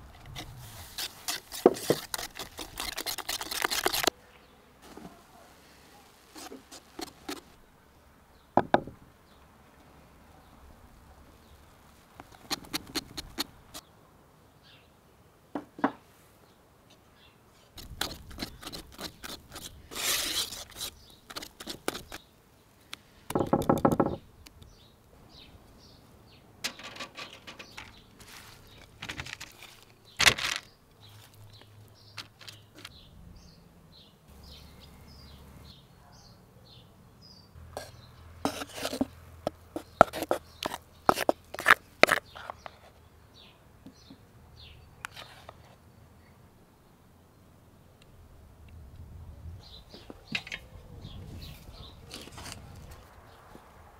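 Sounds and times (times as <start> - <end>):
wooden spoon scraping bowl: 0.2 - 4.1, 6.3 - 7.5, 17.8 - 22.2, 37.8 - 42.9
whisk beating batter: 1.0 - 4.1
birds chirping faintly: 1.4 - 48.4.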